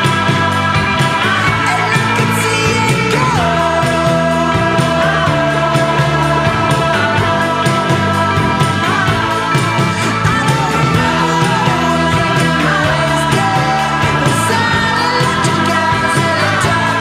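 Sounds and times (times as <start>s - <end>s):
rock music with drum beat: 0.0s - 17.0s.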